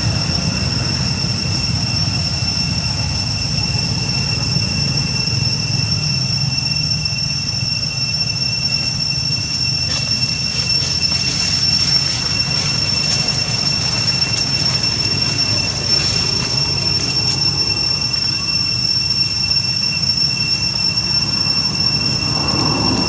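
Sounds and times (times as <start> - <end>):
cicadas droning: 0.0 - 23.0
dry leaves rustling: 9.7 - 18.3.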